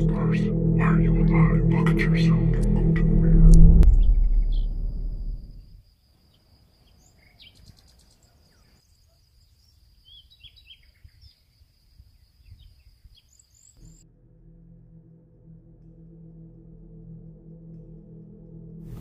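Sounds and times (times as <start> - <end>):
faint low rumble: 0.0 - 5.8
low steady tone: 0.0 - 5.8
steady high-pitched whine: 0.0 - 5.8
bird chirps: 3.7 - 11.5.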